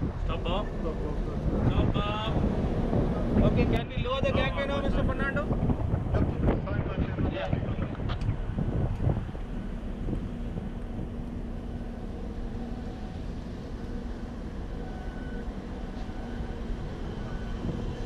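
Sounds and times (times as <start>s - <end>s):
ship machinery hum: 0.0s - 18.0s
wind on microphone: 0.0s - 18.0s
faint steady tone: 10.8s - 18.0s.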